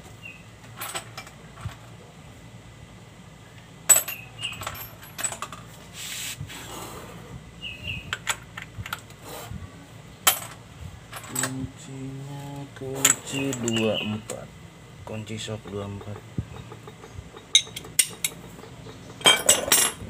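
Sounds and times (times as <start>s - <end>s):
hand tools clinking: 13.0s - 14.1s, 15.5s - 20.0s.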